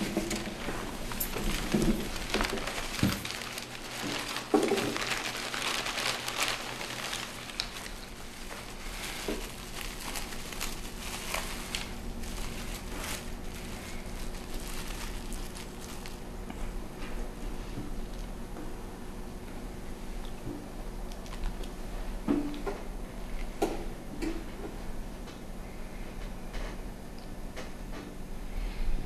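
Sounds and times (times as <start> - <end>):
paper bag rustling: 0.0 - 16.4
steady low hum: 0.0 - 29.0.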